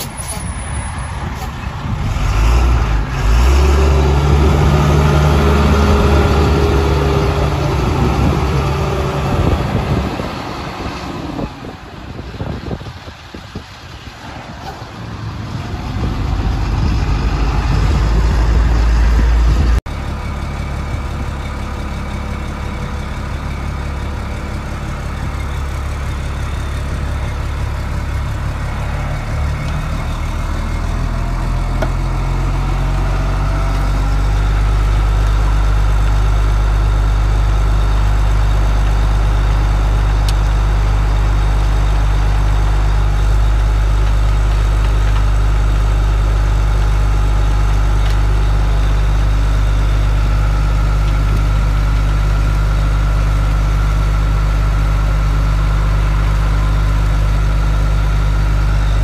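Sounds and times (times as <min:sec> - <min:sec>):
truck diesel engine running: 0:00.0 - 0:59.0.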